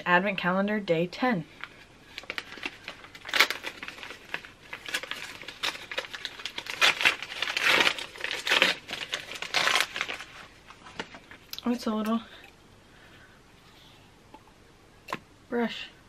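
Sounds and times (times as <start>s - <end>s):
wrapping paper tearing and crinkling: 1.6s - 11.4s.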